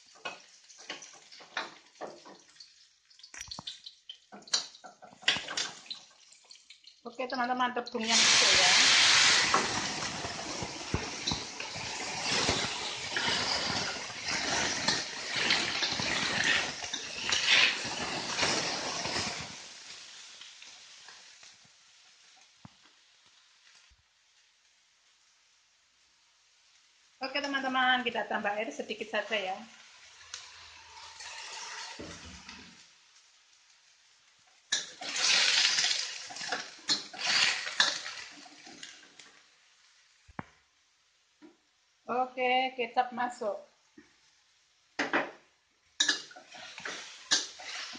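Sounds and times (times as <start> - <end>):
food sizzling in oil: 0.0 - 40.2, 43.1 - 47.9
spatula scraping wok: 8.0 - 20.3, 30.2 - 32.8, 34.7 - 39.0, 46.0 - 47.9
spatula clicking on wok: 46.0 - 47.8.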